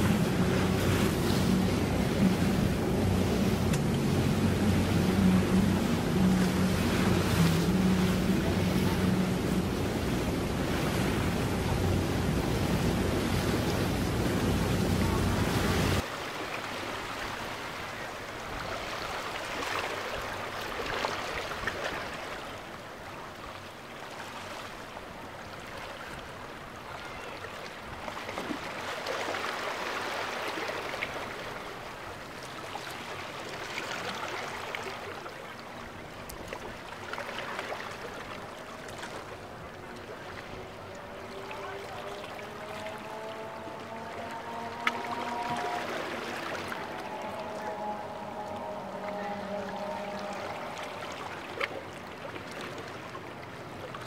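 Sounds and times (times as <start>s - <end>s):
wind buffeting microphone: 0.0s - 16.0s
waves and surf washing: 0.0s - 54.0s.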